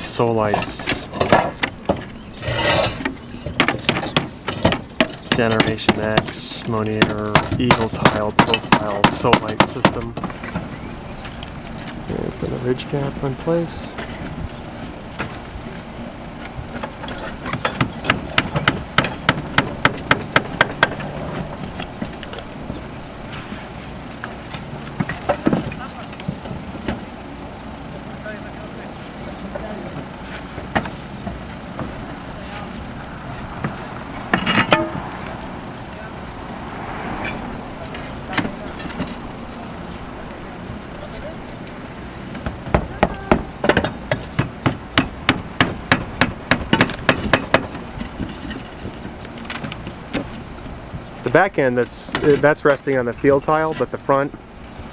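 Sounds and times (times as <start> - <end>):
steady outdoor noise: 0.0 - 54.9
hammer strikes: 3.6 - 10.0, 17.6 - 22.2, 34.3 - 35.1.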